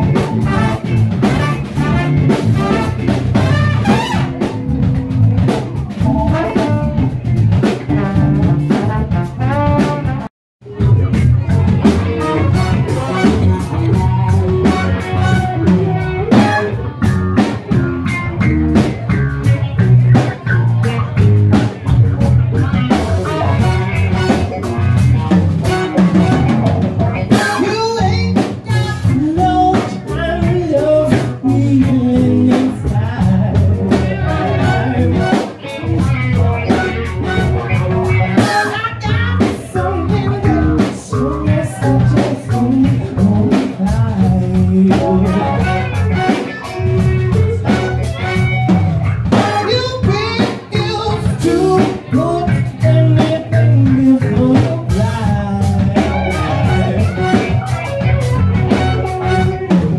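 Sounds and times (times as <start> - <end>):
drum kit: 0.0 - 59.9
electric bass: 0.0 - 59.9
live band playing: 0.0 - 59.9
lead singer singing: 27.2 - 48.7, 49.3 - 57.5.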